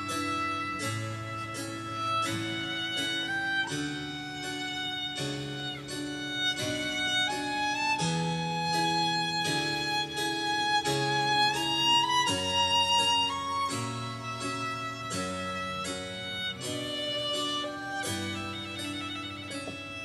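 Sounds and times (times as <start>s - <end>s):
violin playing slow melody: 0.0s - 20.0s.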